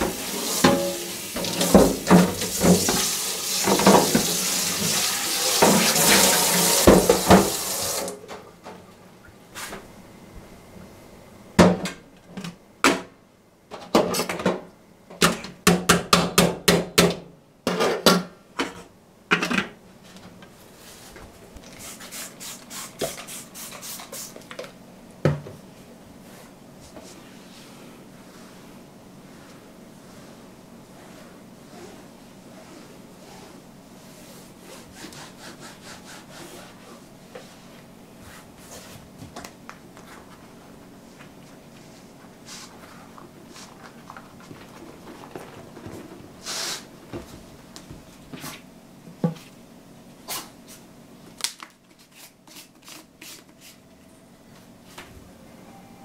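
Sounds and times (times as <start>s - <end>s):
dishes knocking in sink: 0.0s - 4.3s, 6.8s - 7.6s
tap water running into sink: 0.0s - 8.2s.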